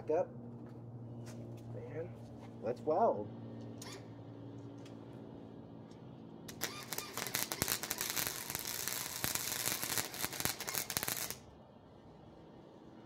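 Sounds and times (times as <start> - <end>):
welder arc crackling: 6.5 - 11.4.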